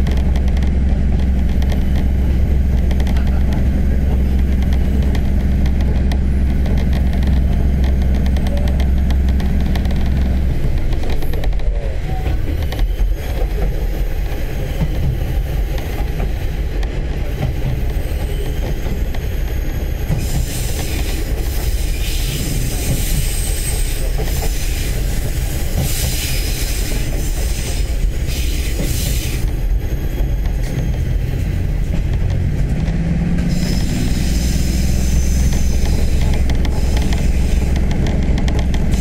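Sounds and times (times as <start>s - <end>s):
train rumbling on rails: 0.0s - 39.0s
wheel squeal: 12.0s - 16.2s, 17.2s - 31.7s, 33.5s - 37.9s.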